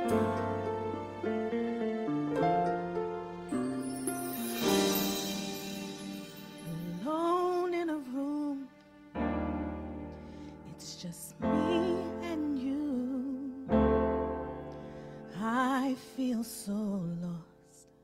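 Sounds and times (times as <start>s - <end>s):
sustained keyboard chords: 0.0s - 7.0s
woman singing with vibrato: 6.6s - 8.7s, 10.7s - 13.7s.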